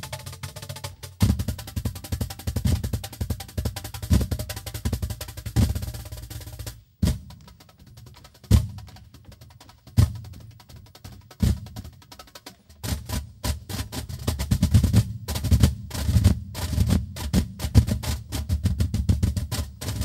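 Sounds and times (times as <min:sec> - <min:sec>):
cajons slapped by hand: 0:00.0 - 0:20.0.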